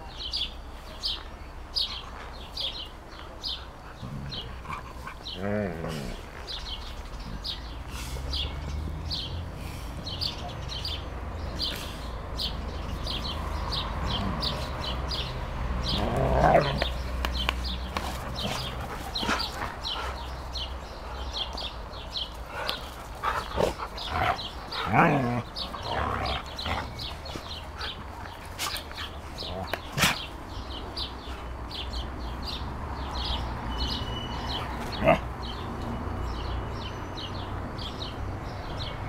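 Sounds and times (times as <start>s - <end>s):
birds chirping: 0.0s - 39.0s
dogs play-fighting and vocalizing: 2.7s - 32.6s, 33.9s - 36.0s.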